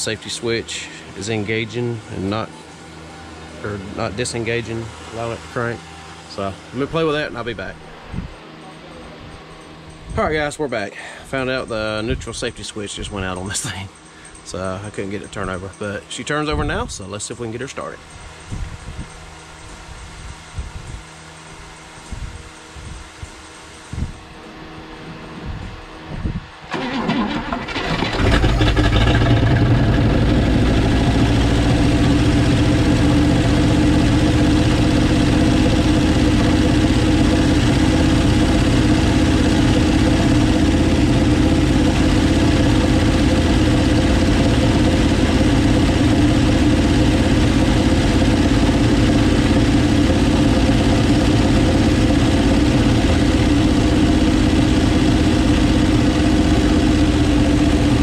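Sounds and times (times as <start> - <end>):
car engine idling: 26.7 - 58.0
car engine starting: 26.7 - 58.0.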